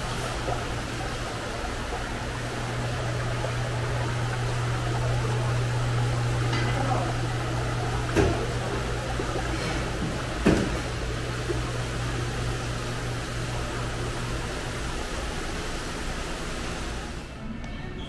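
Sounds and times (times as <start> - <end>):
steady low hum: 0.0 - 16.2
water running and splashing in tanks: 0.0 - 17.3.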